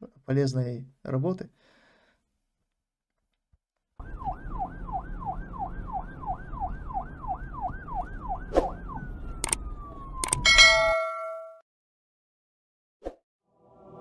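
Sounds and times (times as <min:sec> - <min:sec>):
siren yelp: 0:04.0 - 0:10.9.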